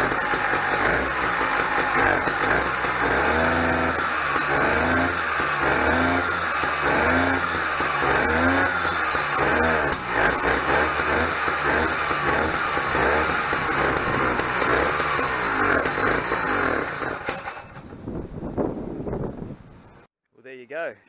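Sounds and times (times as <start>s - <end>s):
two-stroke engine revving: 0.0s - 18.0s.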